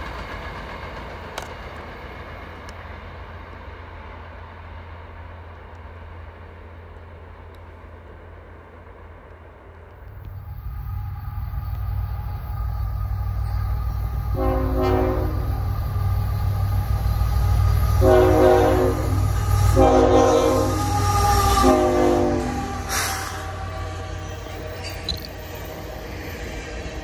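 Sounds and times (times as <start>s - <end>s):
low rumble of train: 0.0s - 27.0s
locomotive air horn blasts: 13.1s - 16.0s, 17.3s - 24.4s.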